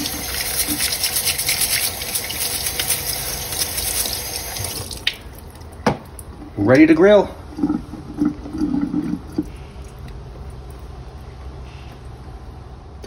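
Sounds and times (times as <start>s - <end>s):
bristle brush scrubbing: 0.0s - 4.0s
faucet running into a sink: 0.0s - 5.4s.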